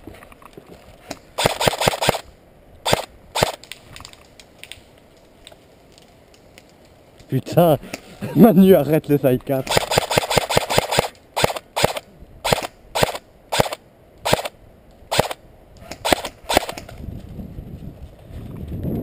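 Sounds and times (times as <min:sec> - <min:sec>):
airsoft rifle shots: 0:01.4 - 0:03.6, 0:09.6 - 0:16.9.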